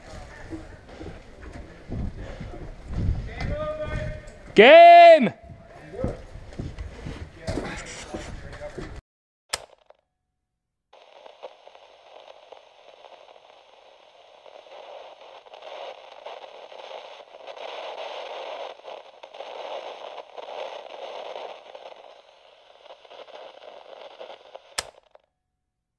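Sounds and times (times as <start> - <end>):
sharp click: 9.5 - 10.0, 24.8 - 25.2
crackling static hiss: 11.0 - 25.1.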